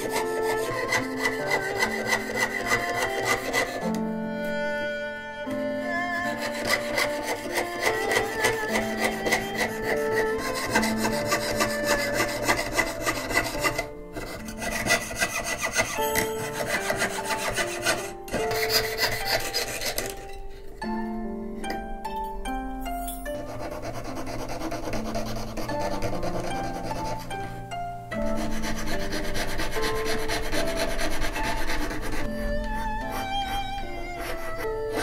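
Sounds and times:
saw rasping through metal: 0:00.0 - 0:03.9, 0:06.1 - 0:20.5, 0:23.3 - 0:27.3, 0:28.2 - 0:35.0
plucked string melody: 0:00.0 - 0:23.8, 0:25.6 - 0:35.0.

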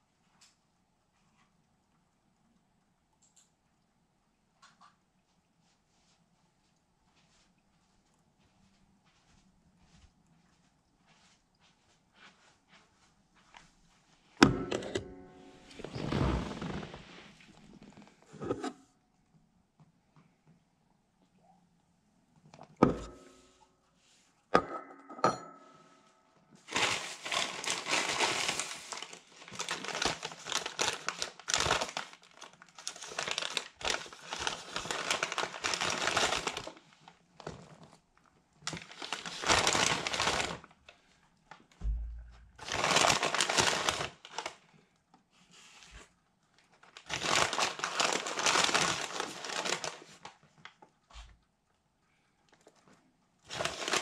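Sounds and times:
paper bag crinkling: 0:15.2 - 0:18.2, 0:26.6 - 0:38.0, 0:38.6 - 0:40.7, 0:42.6 - 0:44.7, 0:46.7 - 0:50.7, 0:53.5 - 0:54.0.

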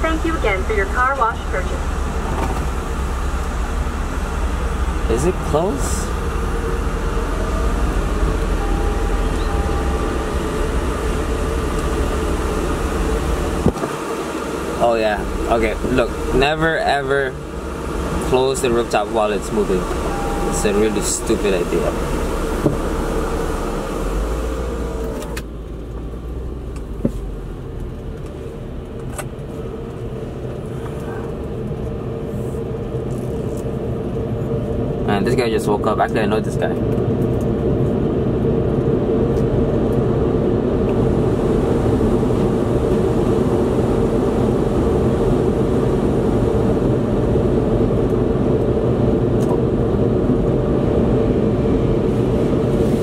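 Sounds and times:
faint steady whine: 0:00.0 - 0:27.5
car roof mechanism humming: 0:00.4 - 0:32.7.

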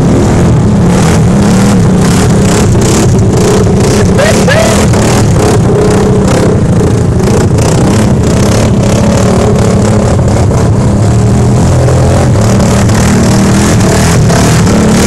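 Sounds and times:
vehicle engine under load: 0:00.0 - 0:15.0.

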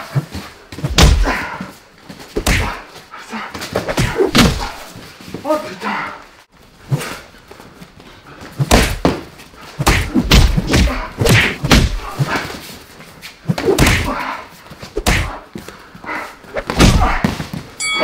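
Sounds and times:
gloved punches and kicks landing: 0:00.7 - 0:01.6, 0:02.3 - 0:02.9, 0:03.7 - 0:04.9, 0:08.6 - 0:12.5, 0:13.5 - 0:14.2, 0:14.9 - 0:15.4, 0:16.6 - 0:17.7.

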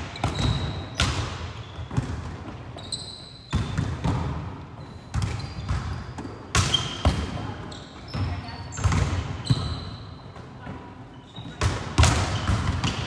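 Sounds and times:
shoe squeaks: 0:00.1 - 0:02.0, 0:02.7 - 0:03.8, 0:04.8 - 0:11.6
volleyball hits echoing: 0:03.5 - 0:09.8, 0:11.5 - 0:13.0.

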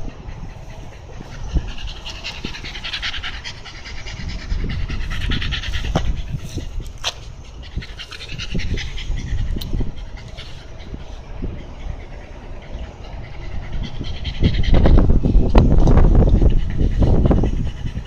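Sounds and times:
dog panting: 0:00.0 - 0:18.0
low rumble: 0:00.0 - 0:18.0.

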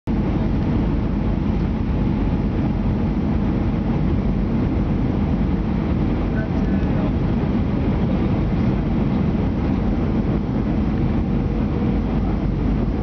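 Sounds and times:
jet engines rumbling in cabin: 0:00.1 - 0:13.0
rushing airflow: 0:00.1 - 0:13.0.

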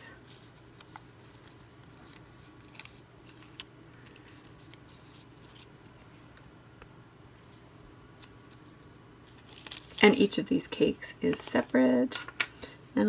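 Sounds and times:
plastic wrapper rustling: 0:00.2 - 0:06.1, 0:09.2 - 0:10.4.

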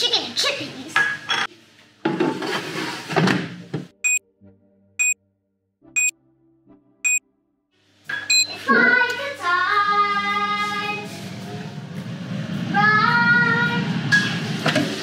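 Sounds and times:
short high beeps: 0:08.3 - 0:08.5.

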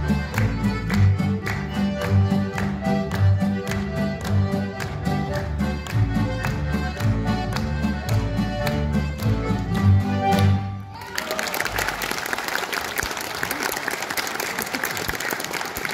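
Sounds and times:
audience applauding: 0:00.0 - 0:08.3, 0:09.2 - 0:15.9
swing tune on accordions and guitar: 0:00.0 - 0:10.9.

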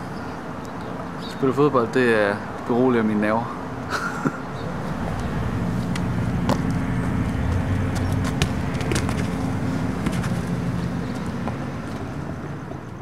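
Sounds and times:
vehicle engine running: 0:04.6 - 0:13.0
ball bouncing on asphalt: 0:05.9 - 0:12.1.

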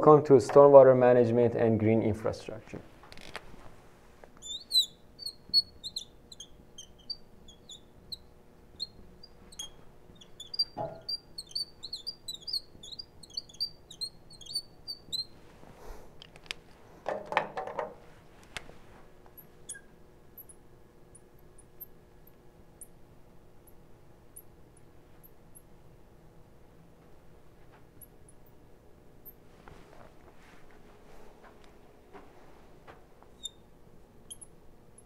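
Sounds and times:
marker squeaking on glass: 0:04.4 - 0:15.4, 0:19.4 - 0:20.6, 0:33.3 - 0:35.0.

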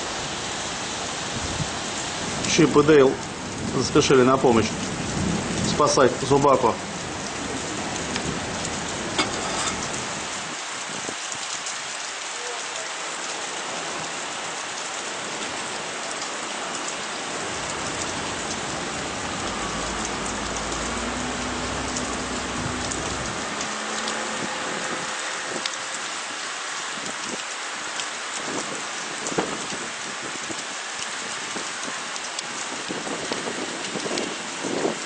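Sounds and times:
steady rain hiss: 0:00.0 - 0:35.0
raindrops ticking close by: 0:00.2 - 0:35.0
outboard motor hum: 0:17.4 - 0:26.9.

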